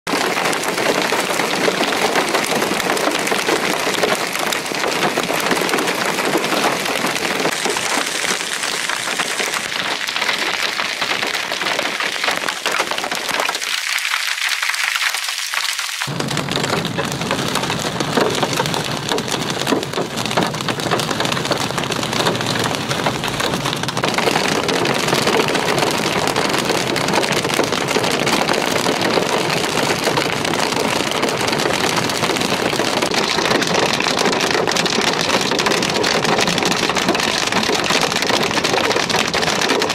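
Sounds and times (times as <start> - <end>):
hail and rain on pavement: 0.1 - 39.9
rain and hail hitting a vehicle: 0.1 - 39.9
low road rumble: 16.1 - 39.9.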